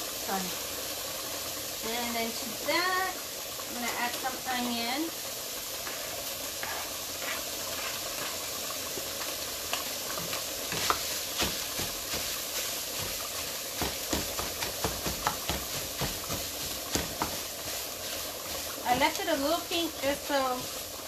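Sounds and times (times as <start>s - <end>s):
meat and onion sizzling: 0.0s - 21.0s
spatula scraping a pan: 5.8s - 8.5s, 10.2s - 13.2s.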